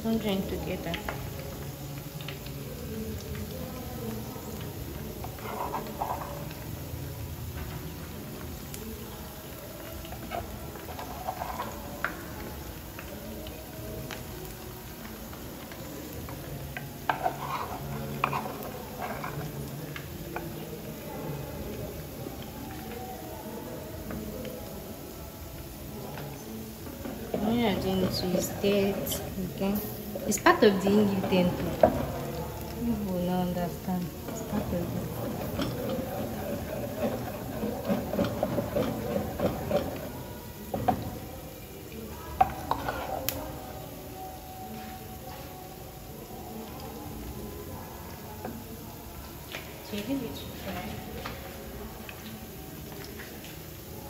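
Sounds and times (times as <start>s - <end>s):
fritters sizzling in oil: 0.0s - 54.0s
spoon scraping in mortar: 5.2s - 6.6s, 17.1s - 19.7s.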